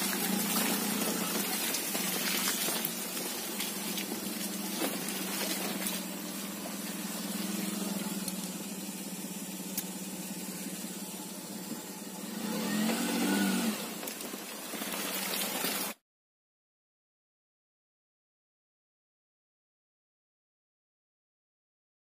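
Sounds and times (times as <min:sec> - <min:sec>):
tyres hissing in water: 0:00.0 - 0:10.6, 0:12.3 - 0:16.0
car engine running: 0:00.0 - 0:15.9.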